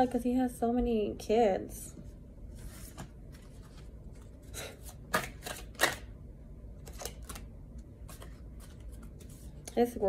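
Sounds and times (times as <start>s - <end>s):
cards being shuffled: 2.6s - 6.1s, 6.8s - 10.0s.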